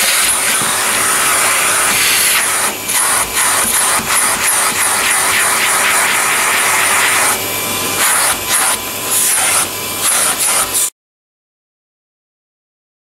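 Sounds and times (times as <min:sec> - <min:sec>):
vacuum cleaner running: 0:00.0 - 0:10.9.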